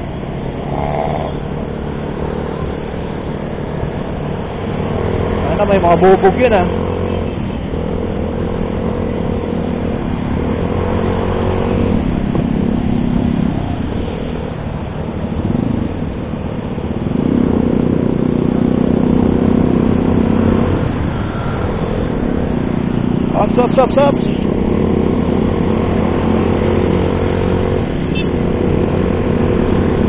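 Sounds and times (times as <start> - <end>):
motorcycle engine droning: 0.0 - 30.0.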